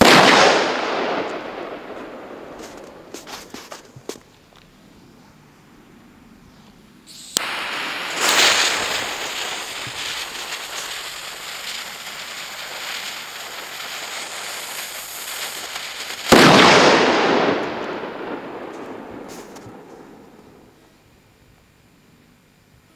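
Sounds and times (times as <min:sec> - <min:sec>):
firecracker bang: 0:00.0 - 0:04.2, 0:07.1 - 0:20.8
fuse hissing: 0:07.0 - 0:16.3.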